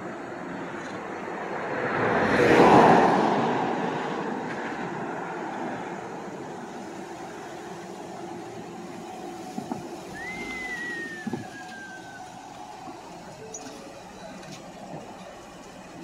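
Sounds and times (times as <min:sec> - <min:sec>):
street traffic hum: 0:00.0 - 0:16.0
faint whine sliding down: 0:06.6 - 0:15.0.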